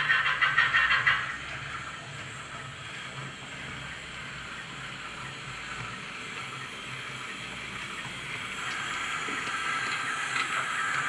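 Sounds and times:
steam locomotive sound from small speaker: 0.0s - 11.0s.

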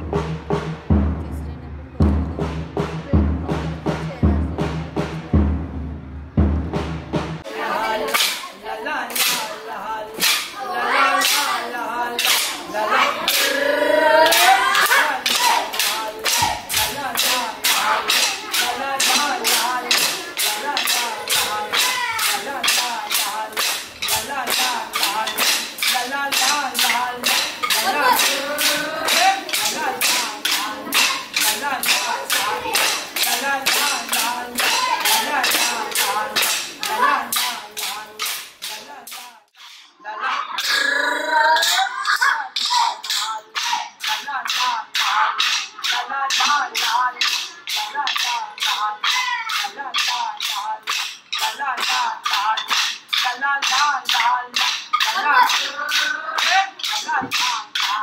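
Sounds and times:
low drum beat: 0.0s - 7.5s, 14.3s - 39.2s
group of voices singing: 7.4s - 42.0s, 42.6s - 58.0s
wooden sticks clacking: 7.8s - 13.6s, 14.2s - 40.0s, 41.6s - 58.0s.

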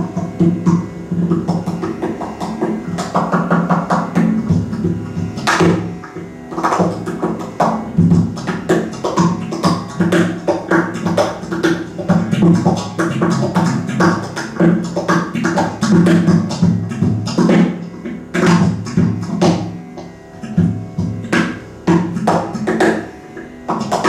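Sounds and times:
guitar fast rhythmic strumming: 0.0s - 24.0s.

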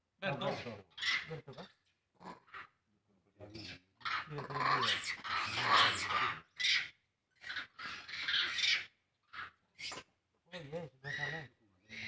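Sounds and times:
monkey screaming: 0.5s - 1.4s, 4.0s - 10.1s.

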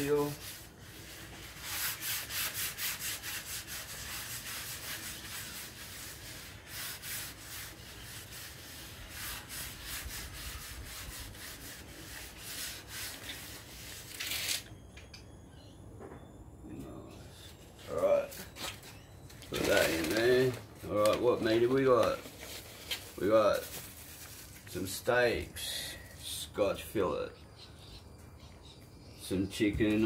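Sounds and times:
rubbing strokes on hotplate: 0.0s - 14.6s.

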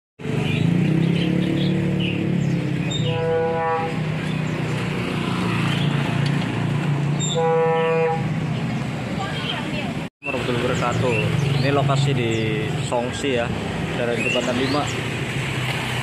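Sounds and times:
street traffic engine hum: 0.2s - 16.0s
vehicle horn honking: 2.9s - 4.2s, 7.2s - 8.4s.

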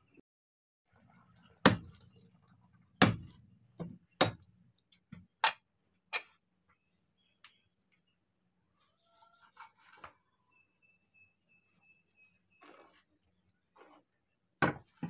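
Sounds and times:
knife chopping on wooden block: 1.6s - 2.0s, 3.0s - 4.4s, 14.6s - 15.0s.

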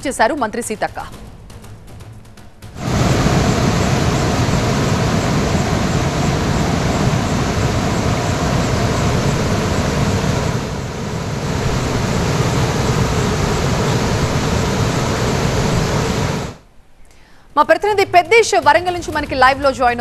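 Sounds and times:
floodwater rushing: 2.8s - 16.6s.

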